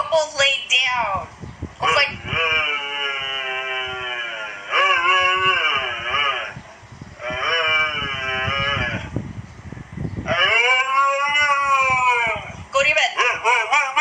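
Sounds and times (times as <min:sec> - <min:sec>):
dog howling and yowling: 0:02.3 - 0:06.6, 0:10.3 - 0:12.6, 0:13.2 - 0:14.0.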